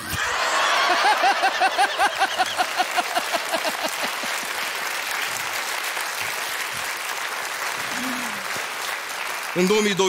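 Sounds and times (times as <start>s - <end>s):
person laughing loudly: 0.0s - 4.5s
audience applauding: 0.2s - 10.0s.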